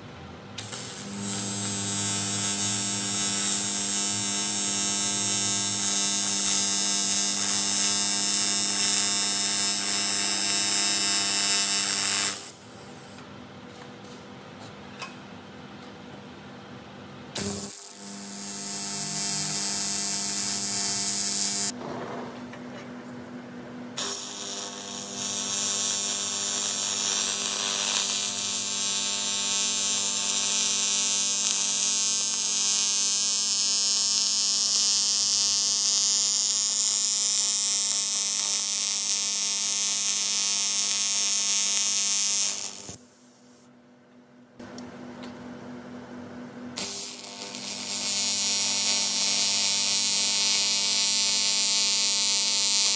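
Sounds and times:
welding arc buzzing: 0:00.6 - 0:13.2, 0:17.3 - 0:21.8, 0:24.0 - 0:43.7, 0:46.8 - 0:52.9.

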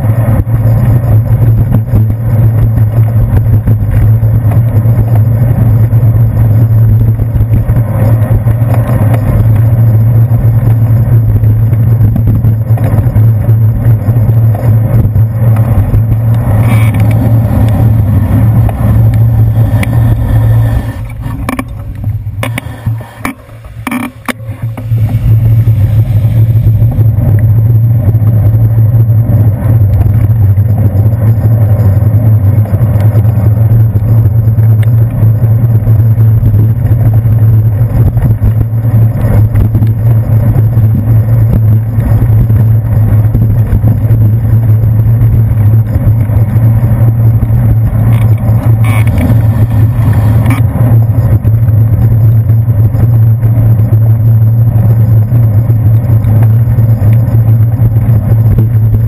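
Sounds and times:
bicycle rattles: 0:00.0 - 0:59.0
road vibration: 0:00.0 - 0:59.0
wind rumble: 0:00.0 - 0:59.0.

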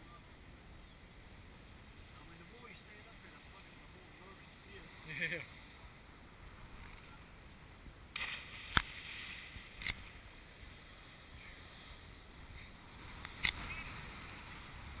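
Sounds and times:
wind and surf hiss: 0:00.0 - 0:15.0
body slapping into water: 0:08.2 - 0:09.9.

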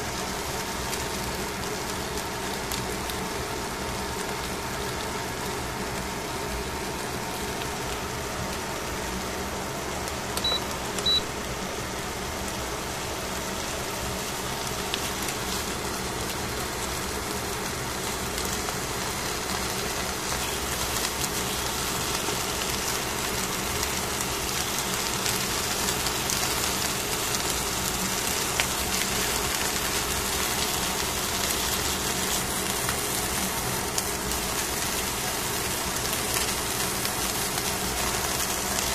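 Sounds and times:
fish sizzling on foil: 0:00.0 - 0:10.4, 0:11.3 - 0:38.9
short high beeps: 0:10.4 - 0:11.3.

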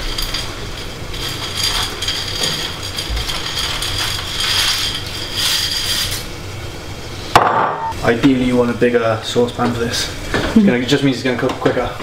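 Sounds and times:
dry pasta clattering into saucepan: 0:00.0 - 0:06.3.

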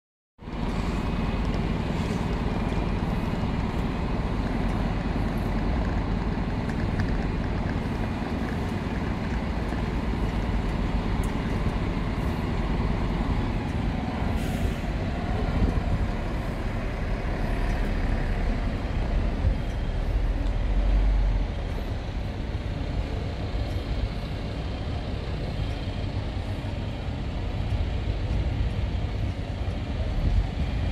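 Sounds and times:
tram running with low rumble: 0:00.4 - 0:30.9.

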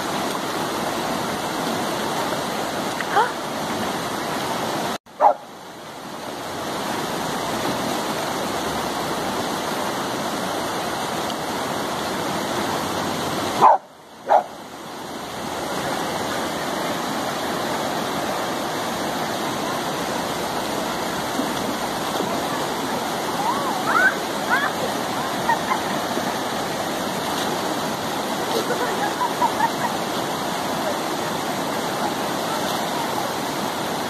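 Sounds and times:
stream rushing over rocks: 0:00.0 - 0:34.0
dog barking: 0:05.2 - 0:05.5, 0:13.6 - 0:14.5.

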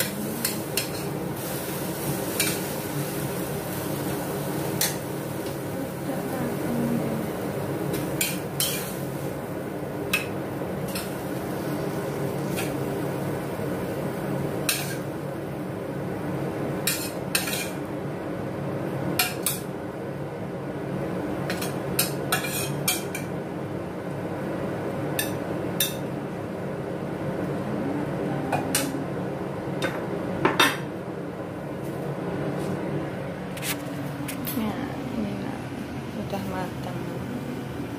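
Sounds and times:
steady background noise: 0:00.0 - 0:37.9
metal spatula scraping a wok: 0:22.4 - 0:22.8.

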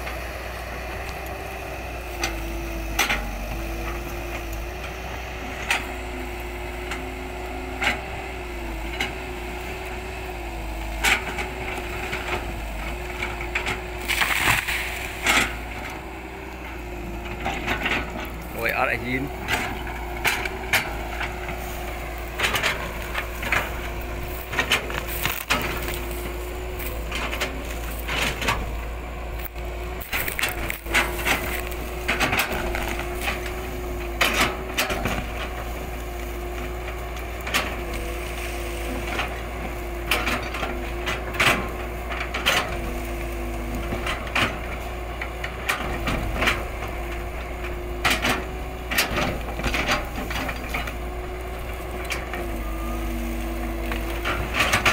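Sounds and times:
excavator engine humming: 0:00.0 - 0:54.9
roots cracking and snapping: 0:12.0 - 0:16.2, 0:18.2 - 0:40.1.

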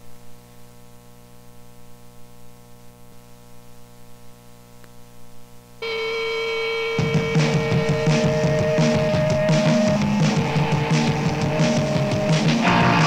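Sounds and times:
low steady hum with hiss: 0:00.0 - 0:07.2
electric guitar chord ringing: 0:05.8 - 0:13.0.

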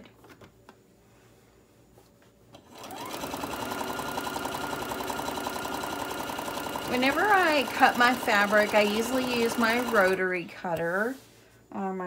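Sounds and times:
sewing machine stitching: 0:02.6 - 0:10.2.

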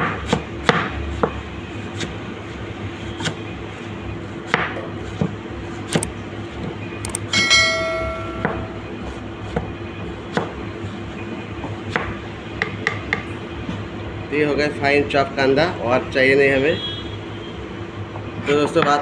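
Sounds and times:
steady hum: 0:03.7 - 0:09.7
metallic ringing: 0:07.2 - 0:09.0.

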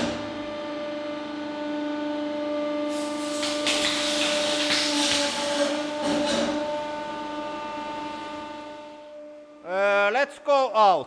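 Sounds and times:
hydraulic press humming: 0:02.8 - 0:09.1.

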